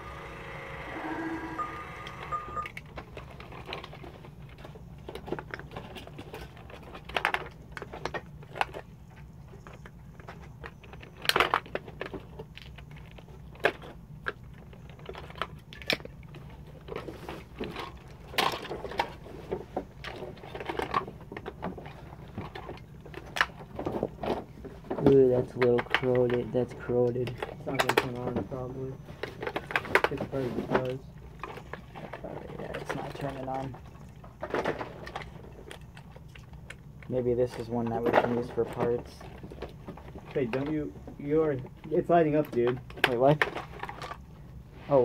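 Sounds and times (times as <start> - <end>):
steady low hum: 0.0 - 11.0
plastic toys clicking and knocking: 1.5 - 28.6, 29.2 - 44.2.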